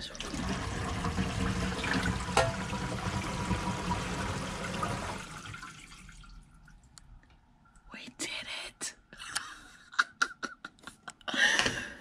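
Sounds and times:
water running down drain: 0.0 - 6.9.

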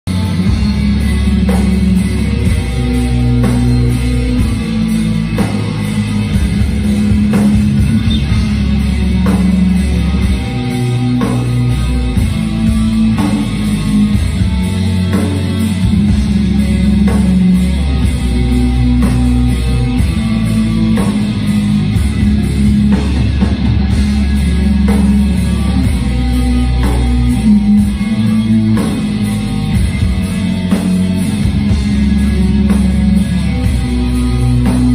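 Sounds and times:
distorted electric guitars: 0.0 - 34.9.

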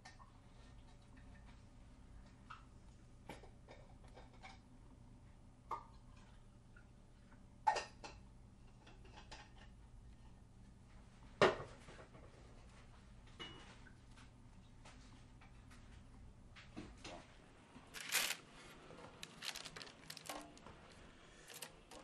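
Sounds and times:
wet hands handling fruit: 18.0 - 18.4, 19.0 - 22.0.

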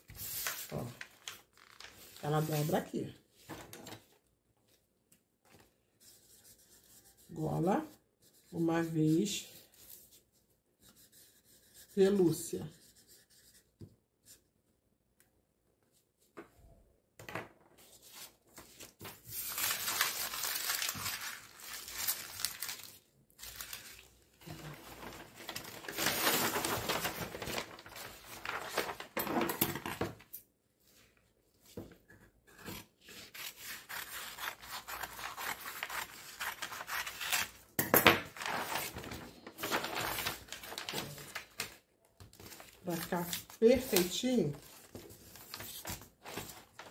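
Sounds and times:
paper rustling and crinkling: 0.0 - 4.8, 17.8 - 32.1, 33.0 - 37.6, 38.2 - 46.9.

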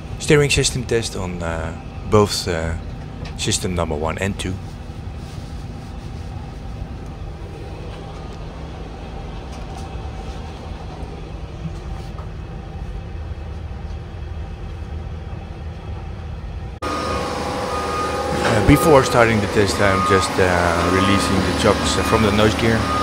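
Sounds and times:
cockpit fans humming: 0.0 - 23.0.

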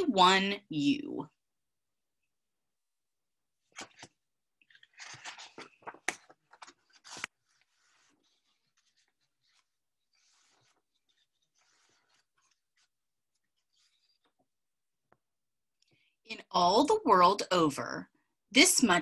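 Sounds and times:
book pages rustling: 3.6 - 14.6.

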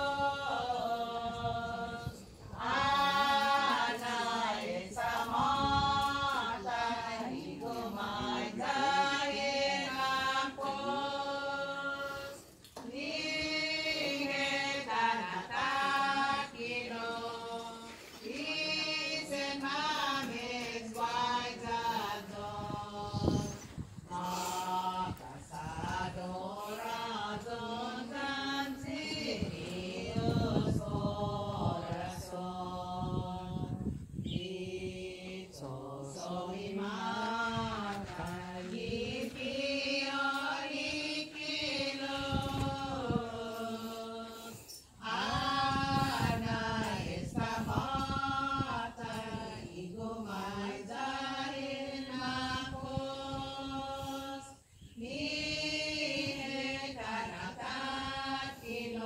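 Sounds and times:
voices singing a slow hymn: 0.0 - 59.0.

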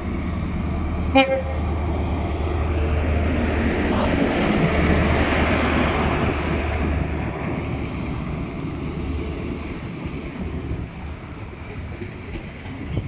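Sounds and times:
train coaches rolling past: 0.0 - 13.0
train diesel engine working hard: 0.0 - 13.0.

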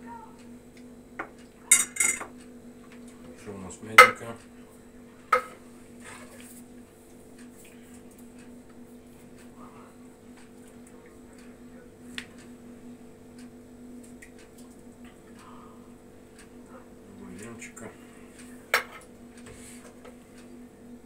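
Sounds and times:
ladle clinking: 1.7 - 2.3.

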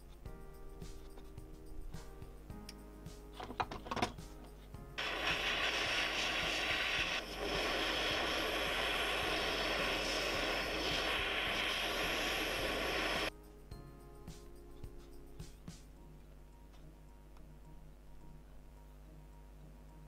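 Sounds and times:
gas torch hissing: 5.0 - 13.3.

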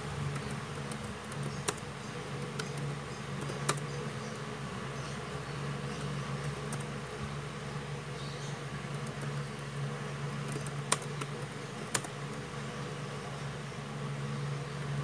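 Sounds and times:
steady low hum: 0.0 - 15.0
laptop keyboard typing: 0.1 - 4.5, 5.8 - 7.1, 8.8 - 12.5.

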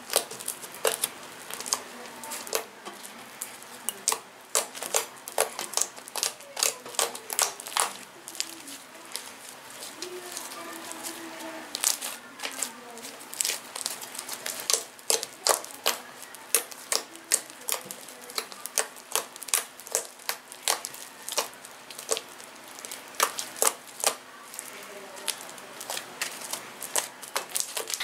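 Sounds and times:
air pockets popping in slime: 0.0 - 8.5, 13.3 - 24.7, 25.3 - 28.0.

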